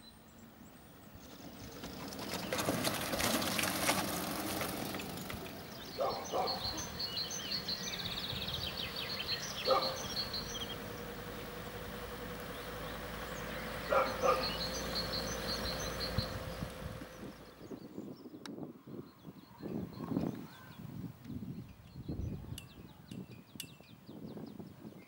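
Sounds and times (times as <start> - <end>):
small birds chirping: 0.0 - 25.0
utility cart passing: 0.2 - 18.1
dog barking: 6.0 - 6.8, 9.6 - 10.1, 13.9 - 14.6.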